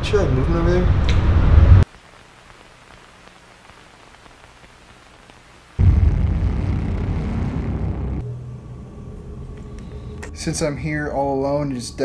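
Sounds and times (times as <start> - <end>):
deep rumbling boom: 5.8 - 9.4.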